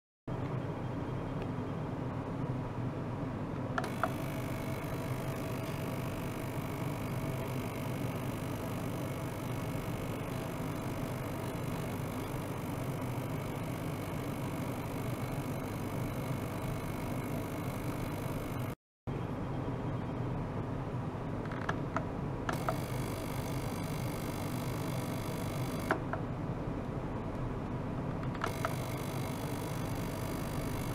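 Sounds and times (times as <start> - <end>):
ultrasonic cleaner humming: 3.8 - 18.8, 22.5 - 26.1, 28.4 - 30.9.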